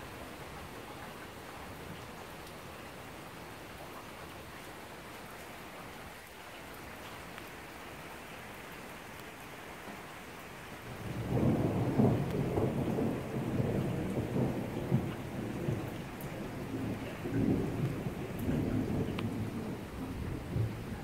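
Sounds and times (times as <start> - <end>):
steady rain: 0.0 - 21.0
thunder rumbling: 10.9 - 21.0.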